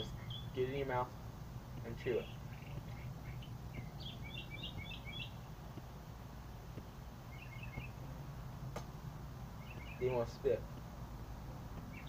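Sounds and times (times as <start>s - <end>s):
small bird chirping: 0.0s - 0.9s, 1.7s - 5.9s, 6.7s - 8.1s, 9.5s - 10.9s, 11.7s - 12.0s
low background rumble: 0.0s - 12.0s.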